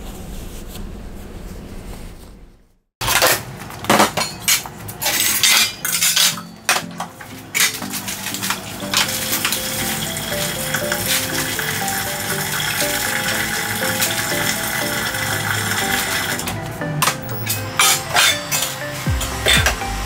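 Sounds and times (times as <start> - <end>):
dishes and utensils clattering: 3.0 - 19.8
light background music: 5.2 - 20.0.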